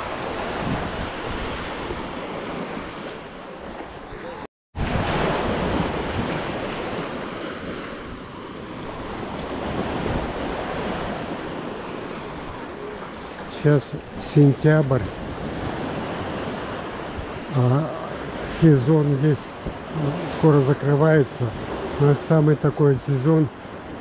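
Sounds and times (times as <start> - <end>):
wind buffeting microphone: 0.0 - 3.0
surf washing onto beach: 0.0 - 24.0.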